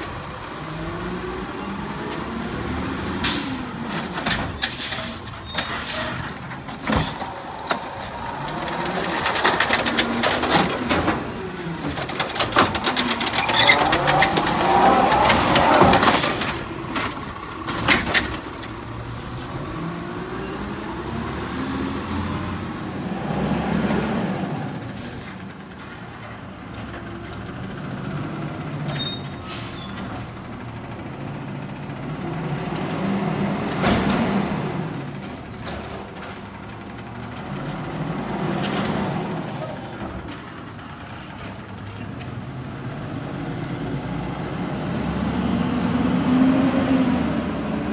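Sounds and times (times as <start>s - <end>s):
garbage truck engine revving: 0.1s - 25.0s, 42.4s - 47.9s
cart knocking and clattering: 3.8s - 18.4s.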